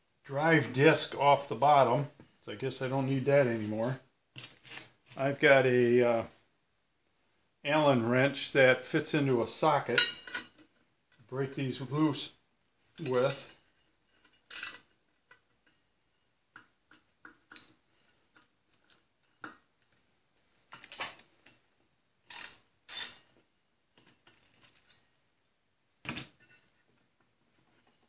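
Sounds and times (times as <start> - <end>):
ratchet wrench clicking: 14.5 - 14.8, 22.3 - 23.2.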